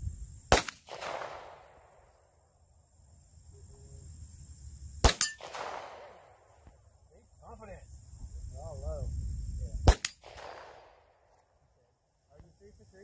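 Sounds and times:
gunshots with echo: 0.5s - 1.7s, 5.0s - 6.3s.

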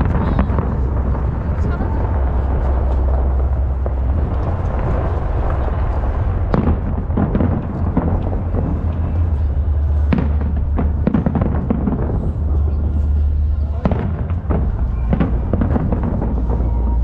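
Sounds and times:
firework bangs and crackles: 0.0s - 17.0s
fireworks rumbling: 0.0s - 17.0s.

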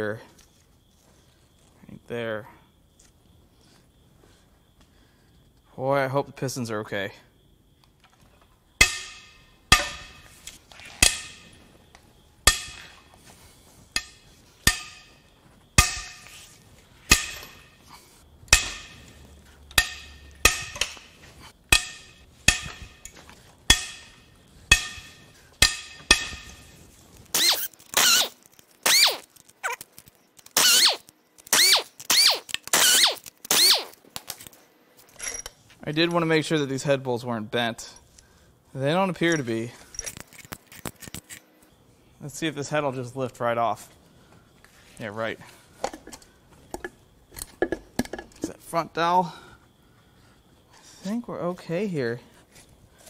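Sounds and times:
breaker bar metallic cracks: 8.8s - 11.6s, 12.5s - 13.0s, 14.0s - 15.2s, 15.8s - 16.4s, 17.1s - 17.8s, 18.5s - 34.5s
impact wrench bursts: 27.3s - 29.3s, 30.5s - 34.0s.

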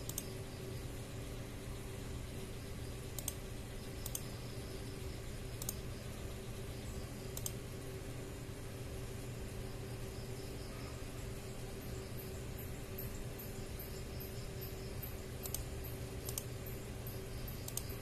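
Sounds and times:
computer mouse clicks: 0.0s - 0.4s, 3.1s - 3.4s, 4.0s - 4.4s, 5.6s - 5.8s, 7.3s - 7.6s, 15.4s - 16.6s, 17.6s - 18.0s
steady low hum: 0.0s - 18.0s.

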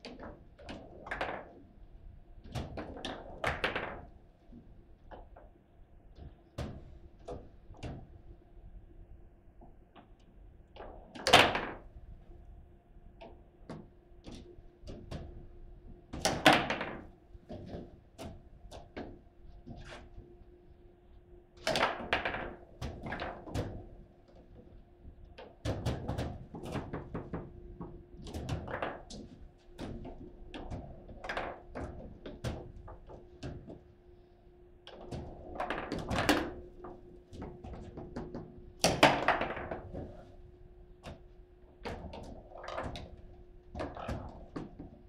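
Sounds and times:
foosball table clacks and thunks: 0.1s - 1.7s, 2.4s - 4.2s, 10.8s - 11.9s, 16.1s - 20.1s, 21.6s - 24.6s, 25.4s - 33.9s, 34.9s - 40.4s, 41.0s - 45.0s
faint steady hum: 11.5s - 45.0s.

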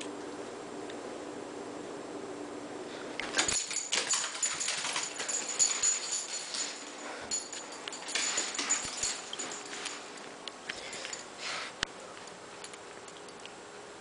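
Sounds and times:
dog claws scrabbling on floor: 3.2s - 10.2s.

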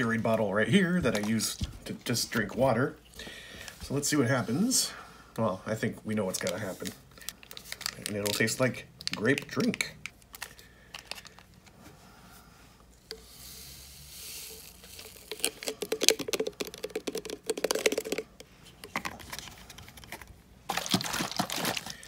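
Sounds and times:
powder packet crinkling: 6.2s - 11.7s, 14.4s - 22.0s
powder pouring into bottle: 13.0s - 18.4s
bottle screw cap closing: 14.6s - 19.1s.

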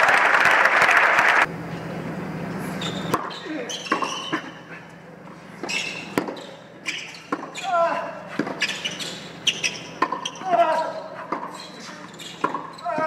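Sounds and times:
crowd applause: 0.0s - 1.5s
tennis ball bounced and struck: 2.8s - 4.4s, 5.6s - 7.6s, 9.6s - 11.6s, 12.2s - 13.0s.

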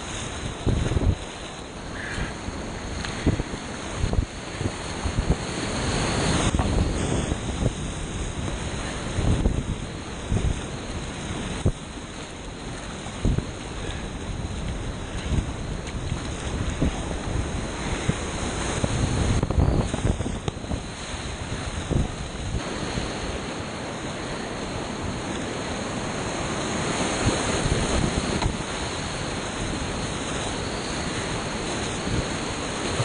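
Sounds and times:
whitewater rapids rushing: 0.0s - 33.0s
wind buffeting microphone: 0.0s - 33.0s.

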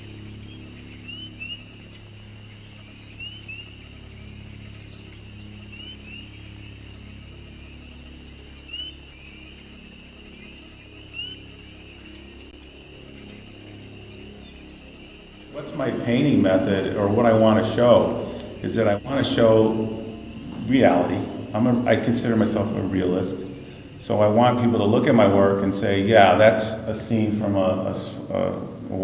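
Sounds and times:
low steady hum: 0.0s - 29.0s
faint high chorus: 15.5s - 29.0s.

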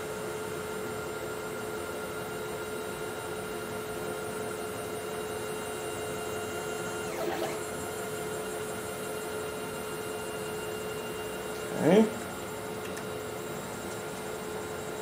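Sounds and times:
stepper motors whining: 6.8s - 8.6s.

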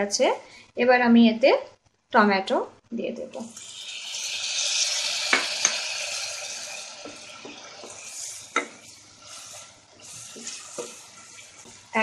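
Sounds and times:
tomatoes sizzling in hot oil: 3.3s - 12.0s.

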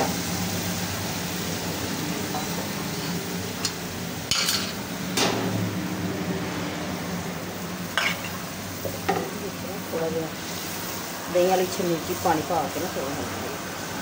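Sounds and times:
bowl and utensils clinking: 4.3s - 4.8s.

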